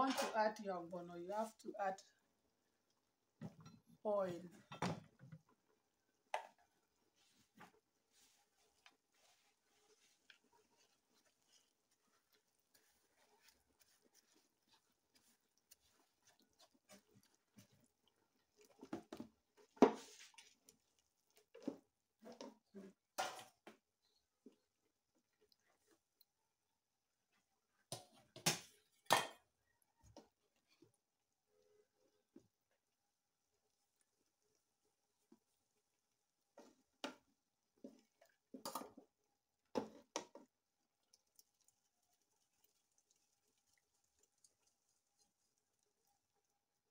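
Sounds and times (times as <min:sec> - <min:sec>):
wooden spoon scraping metal pot: 0:07.4 - 0:18.0.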